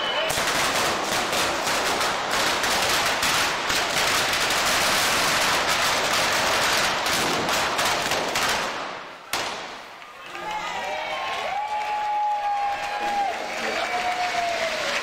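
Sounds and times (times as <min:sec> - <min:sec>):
firecrackers exploding rapidly: 0:00.0 - 0:10.1.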